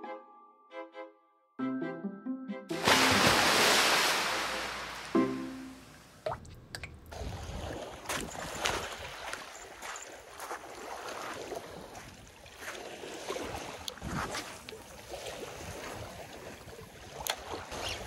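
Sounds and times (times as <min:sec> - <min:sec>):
sea water lapping and splashing: 0:02.7 - 0:05.2, 0:07.1 - 0:18.0.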